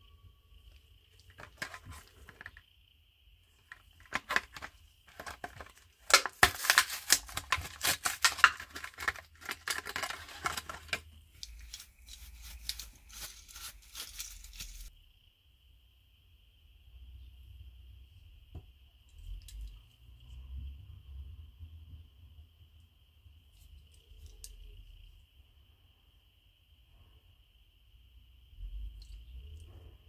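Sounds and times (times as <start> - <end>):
plastic packaging tearing and crinkling: 1.2 - 2.6, 3.6 - 14.9.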